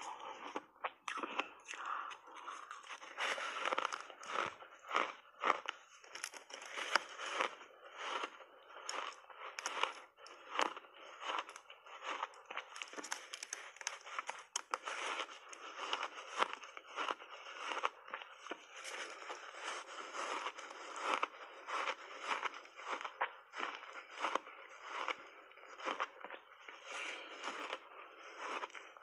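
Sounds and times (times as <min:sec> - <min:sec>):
crunching and chewing ice: 0:00.0 - 0:29.0.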